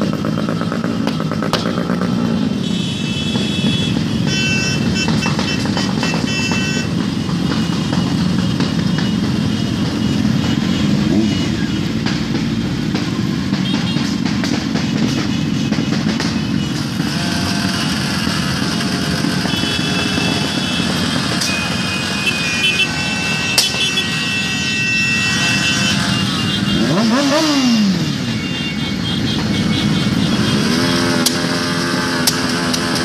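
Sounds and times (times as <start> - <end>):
motorcycle engine revving: 0.0 - 2.7, 3.3 - 23.4, 25.3 - 33.0
motorcycle engines running: 0.0 - 33.0.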